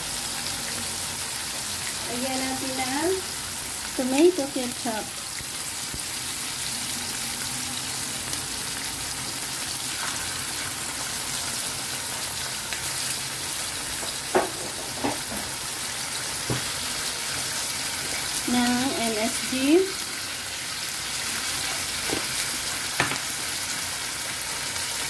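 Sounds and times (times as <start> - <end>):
food sizzling in a frying pan: 0.0 - 25.0.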